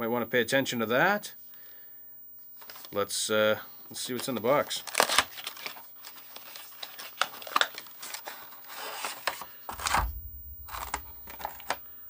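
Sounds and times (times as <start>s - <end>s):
cardboard and plastic crinkling: 2.6s - 2.9s, 4.0s - 11.9s
heavy thump: 9.7s - 11.4s.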